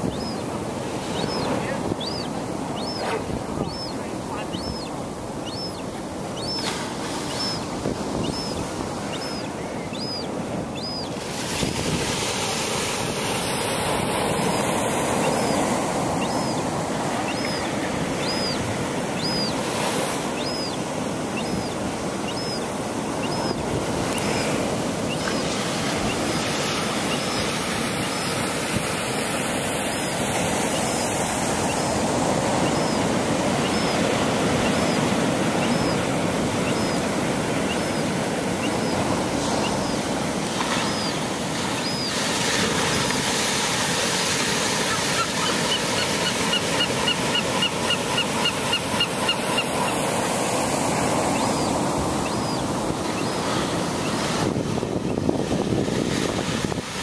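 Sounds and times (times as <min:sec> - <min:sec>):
young gull begging cries: 0:00.1 - 0:00.4, 0:01.2 - 0:06.6, 0:07.3 - 0:11.2, 0:15.2 - 0:19.6, 0:20.4 - 0:24.4, 0:30.7 - 0:39.0, 0:44.8 - 0:53.4.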